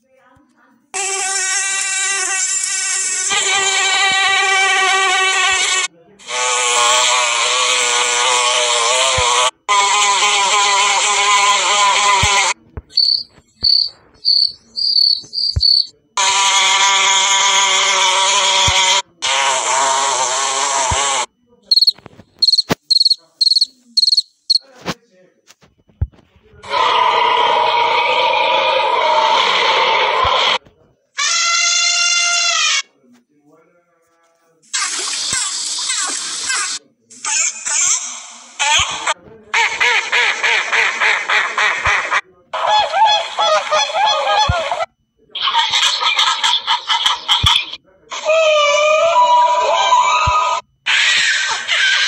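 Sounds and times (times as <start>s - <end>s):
cricket chirping: 12.8s - 16.0s, 21.6s - 25.0s.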